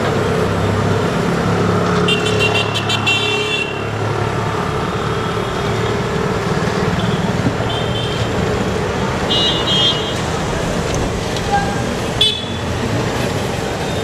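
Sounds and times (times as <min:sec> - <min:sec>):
street traffic: 0:00.0 - 0:14.0
vehicle horn beeping: 0:02.1 - 0:03.8, 0:09.3 - 0:10.2, 0:11.5 - 0:12.7.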